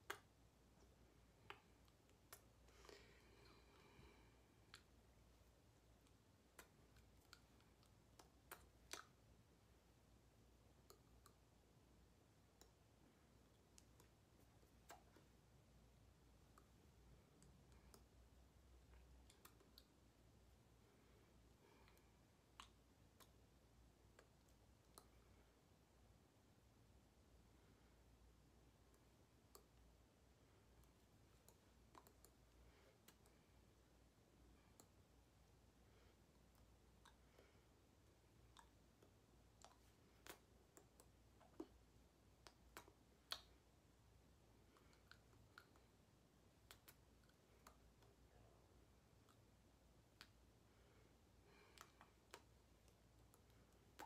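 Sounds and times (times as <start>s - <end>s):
faint sharp clicks: 36.4s - 41.8s, 46.6s - 48.2s.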